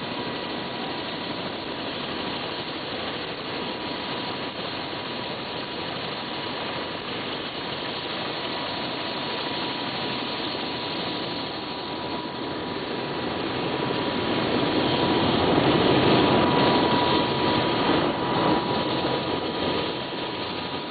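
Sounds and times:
helicopter engine idling: 0.0s - 20.9s.

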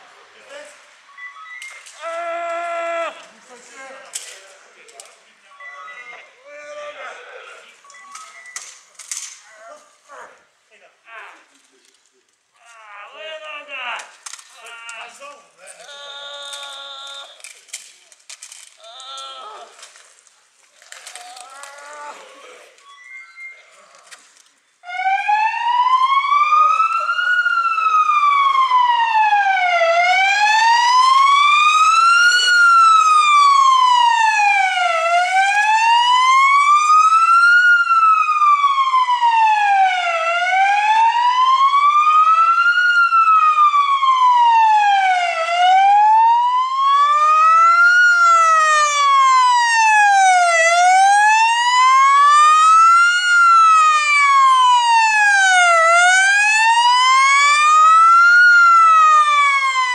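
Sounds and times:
electronic siren wailing: 22.8s - 23.9s, 24.8s - 59.9s.

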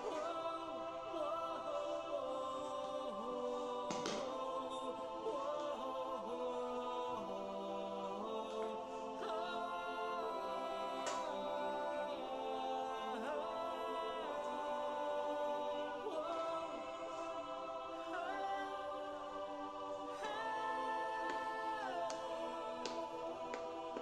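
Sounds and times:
background music with held notes: 0.0s - 24.0s.

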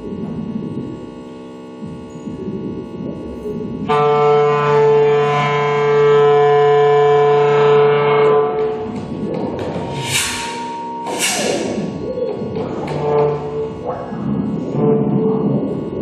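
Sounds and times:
low drone: 0.0s - 16.0s
low electronic texture: 0.0s - 16.0s
loud held clarinet note: 3.9s - 8.9s.

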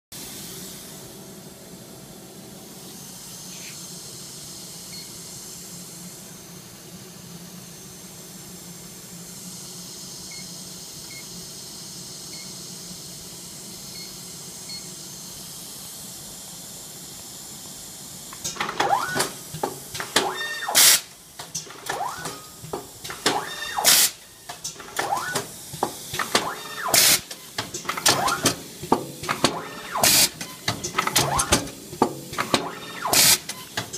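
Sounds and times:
machine clicks and clunks: 18.4s - 33.9s
machine hum: 18.5s - 33.9s.

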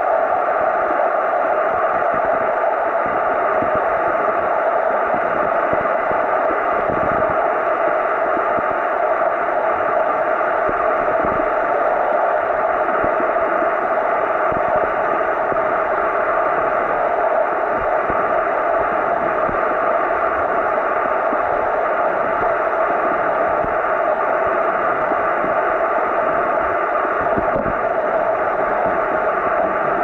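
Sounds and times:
faint constant hum: 0.0s - 30.0s.

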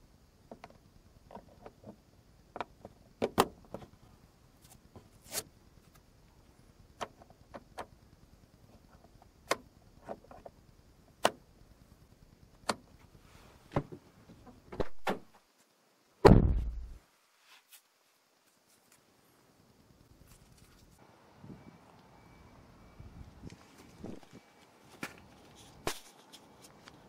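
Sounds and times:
heavy thump: 16.2s - 17.0s.

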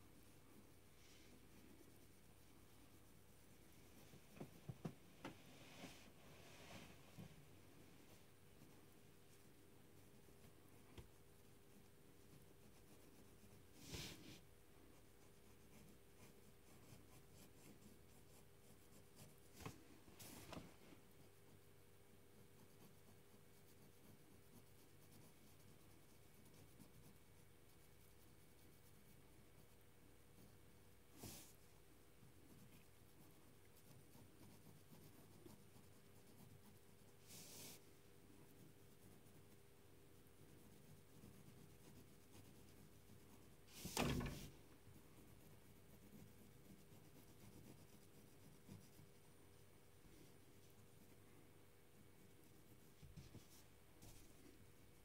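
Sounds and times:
pencil scratching on paper: 8.6s - 20.5s, 22.3s - 37.8s, 38.4s - 49.6s
pen scratching on paper: 14.9s - 19.4s, 32.5s - 37.8s, 40.4s - 44.2s, 45.0s - 49.2s.

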